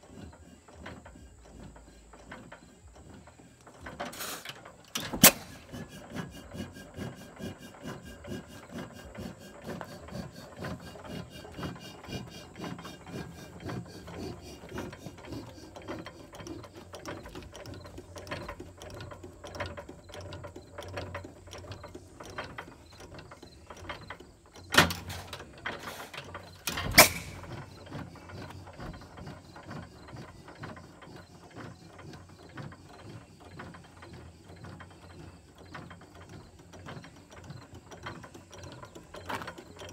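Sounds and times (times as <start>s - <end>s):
gas engine rhythmic clatter: 0.0s - 39.9s
engine loud sharp bangs: 26.8s - 27.4s.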